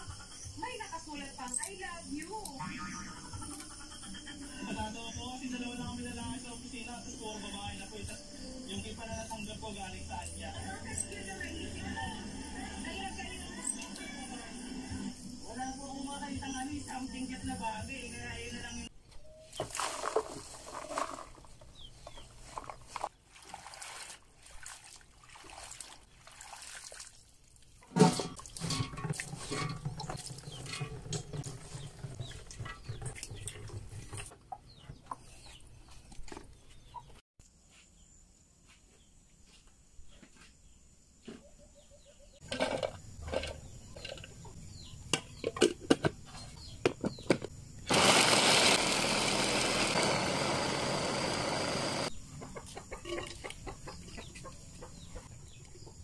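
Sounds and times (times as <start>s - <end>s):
water splashing in basins: 19.5s - 21.6s, 22.4s - 34.3s
electric food chopper running: 47.9s - 52.1s.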